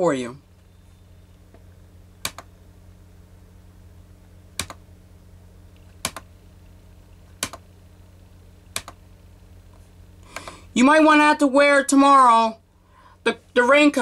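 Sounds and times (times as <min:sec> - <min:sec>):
low steady hum: 0:00.0 - 0:14.0
computer mouse clicks: 0:02.2 - 0:02.5, 0:04.6 - 0:04.8, 0:05.7 - 0:06.3, 0:07.4 - 0:07.6, 0:08.7 - 0:09.0.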